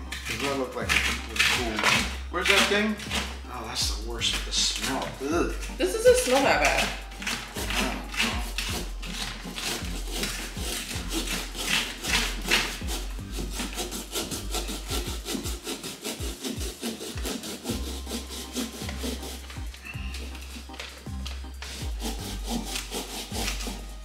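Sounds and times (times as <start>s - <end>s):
saw cutting through pumpkin: 0.0s - 24.0s.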